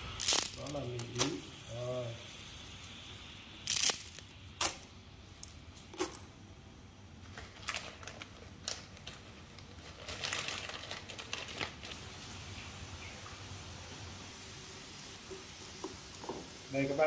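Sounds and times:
dry spaghetti clicking and crackling: 0.0s - 1.4s, 2.8s - 6.2s, 7.2s - 12.3s.

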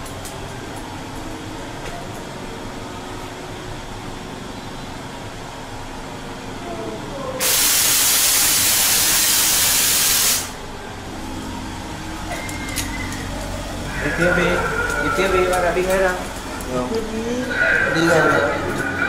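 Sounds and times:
loud hiss of compressed air: 7.4s - 10.6s
steady low hum: 10.5s - 19.0s.

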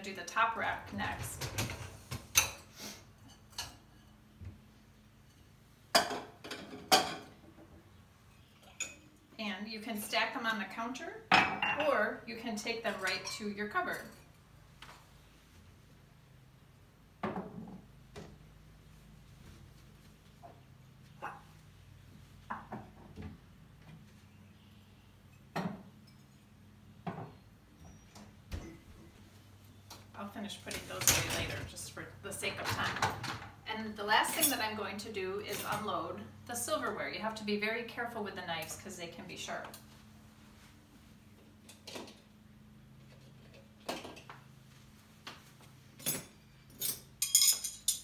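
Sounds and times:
ceramic mugs and glasses clinking: 11.3s - 12.0s, 47.1s - 48.0s.

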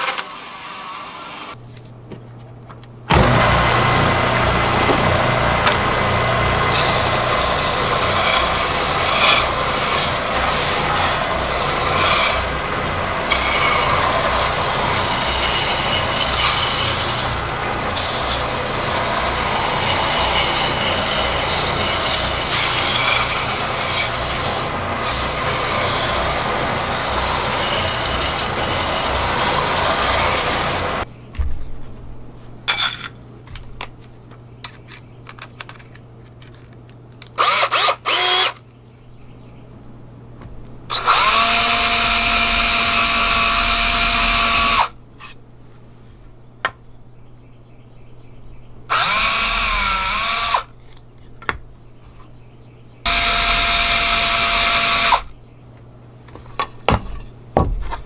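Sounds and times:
belt sander motor humming: 3.1s - 31.1s, 37.4s - 38.6s, 40.9s - 45.0s, 48.9s - 50.7s, 53.1s - 55.3s
wood sanding on belt: 6.6s - 31.0s.

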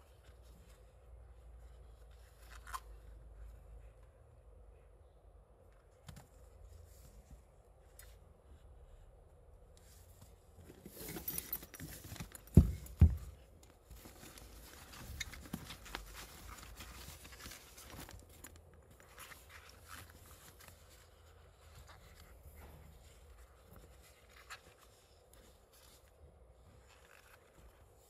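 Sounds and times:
rubber gloves and pouch rustling: 0.0s - 4.2s, 5.9s - 28.0s
dull thumps: 12.2s - 13.5s.

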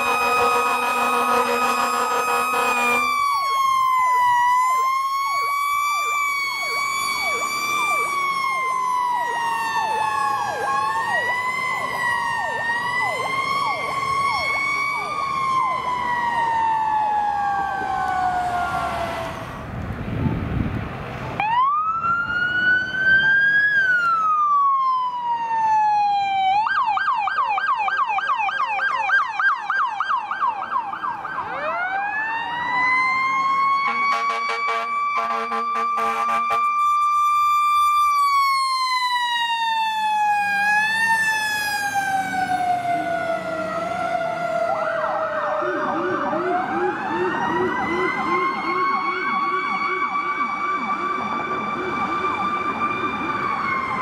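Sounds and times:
siren fast yelp: 0.0s - 19.5s, 21.4s - 54.0s
siren wailing: 0.0s - 19.7s, 21.4s - 54.0s.

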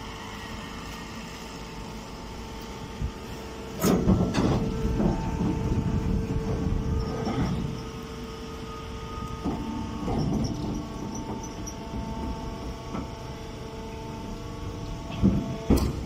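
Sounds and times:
hay baler humming: 0.0s - 16.0s
bale rumbling and rustling: 2.7s - 13.3s.

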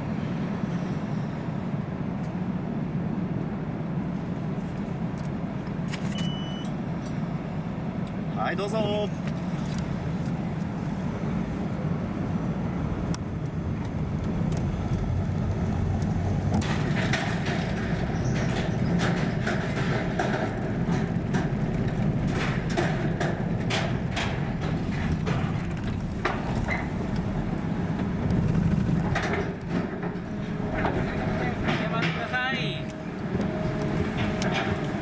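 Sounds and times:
car engine and road hum: 2.4s - 35.0s
tyres clunking over steel ramp: 13.3s - 35.0s.

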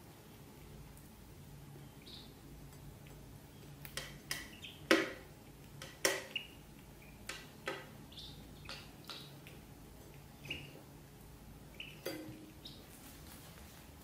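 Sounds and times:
duckling peeps: 1.8s - 2.4s, 3.5s - 5.2s, 6.1s - 10.9s, 11.7s - 13.0s
taps on metal food bowls: 12.0s - 12.6s.

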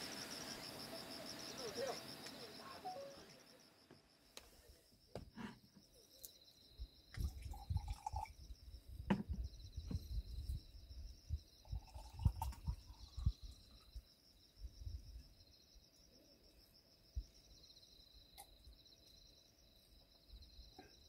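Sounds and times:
insects chirring: 0.0s - 21.0s
drink pouring into a glass: 7.2s - 8.4s, 11.6s - 13.8s.

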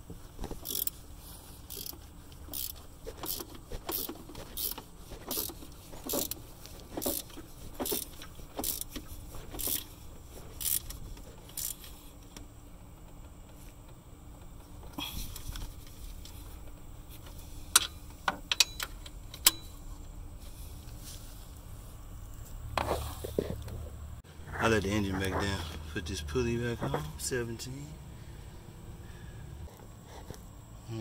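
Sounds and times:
wrench clicking on bolt: 0.6s - 1.0s, 1.7s - 6.4s, 10.6s - 11.9s.

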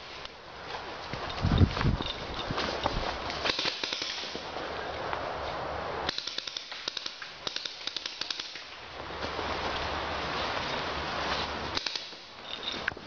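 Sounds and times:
steady rushing hiss: 0.0s - 13.0s
paintball markers firing: 3.3s - 4.4s, 6.1s - 8.7s, 11.7s - 12.2s.

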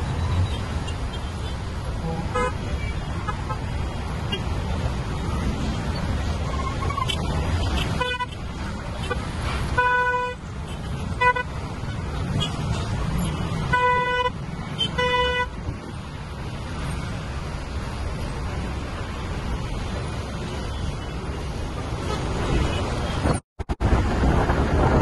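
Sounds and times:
engines and road traffic rumble: 0.0s - 25.0s
vehicle horn honking: 2.0s - 3.0s, 7.8s - 8.3s, 9.8s - 10.4s, 13.7s - 15.5s.

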